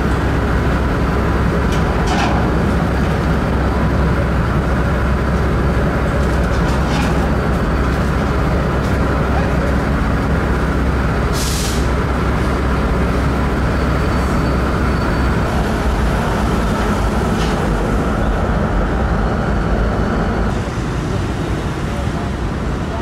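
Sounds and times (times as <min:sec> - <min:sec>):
low mechanical rumble: 0:00.0 - 0:23.0
short hiss: 0:11.4 - 0:11.9.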